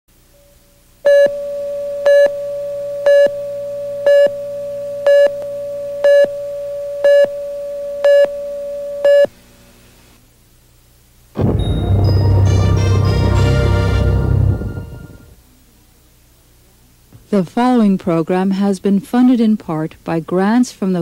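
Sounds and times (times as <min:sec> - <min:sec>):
steady mid-pitched tone: 0:00.4 - 0:09.3
beeps: 0:01.1 - 0:02.4, 0:03.0 - 0:06.4, 0:07.0 - 0:07.4, 0:08.0 - 0:08.4, 0:09.0 - 0:09.3.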